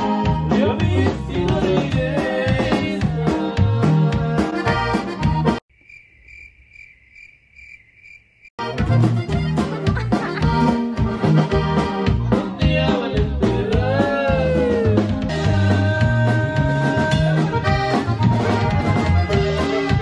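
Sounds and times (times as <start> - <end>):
accordion-led regional music: 0.0 - 5.6, 8.6 - 20.0
cricket chirps: 5.7 - 8.6.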